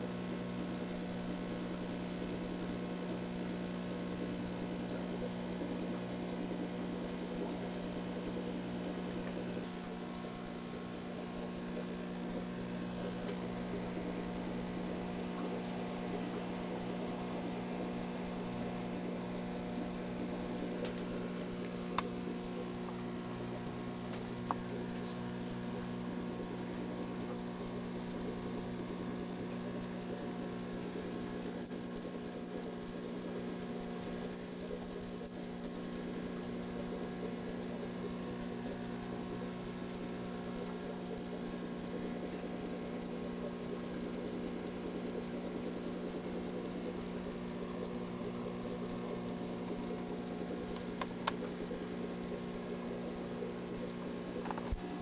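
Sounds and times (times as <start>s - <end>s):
aquarium air pump hum: 0.0s - 55.0s
soft bubbling of filter: 0.0s - 55.0s.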